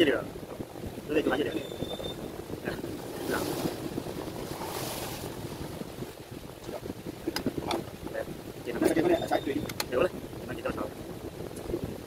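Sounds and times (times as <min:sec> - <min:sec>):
wind on microphone: 0:00.0 - 0:12.0
sharp clicks: 0:09.6 - 0:10.0.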